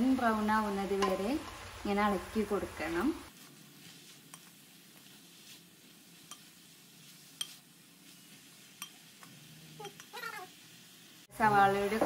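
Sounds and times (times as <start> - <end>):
onions sizzling in a pan: 0.0 - 12.0
spatula clicking on pan: 6.3 - 6.5, 8.8 - 10.2.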